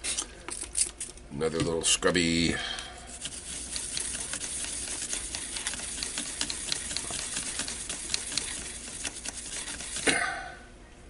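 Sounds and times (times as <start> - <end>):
toothbrush scrubbing circuit board: 3.1 - 10.1.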